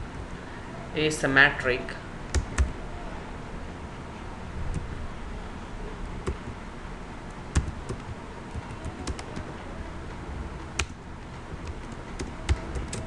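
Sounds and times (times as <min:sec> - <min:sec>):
low background hum: 0:00.0 - 0:13.0
computer keyboard typing: 0:02.3 - 0:02.7, 0:07.5 - 0:09.5, 0:10.6 - 0:13.0.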